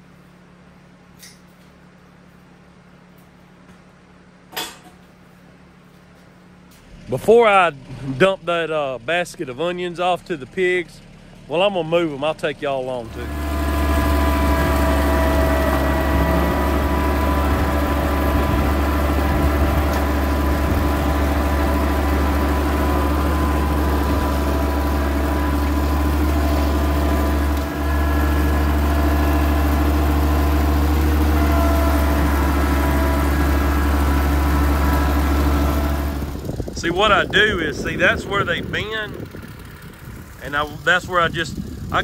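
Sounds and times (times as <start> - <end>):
tractor engine running: 5.9 - 42.0.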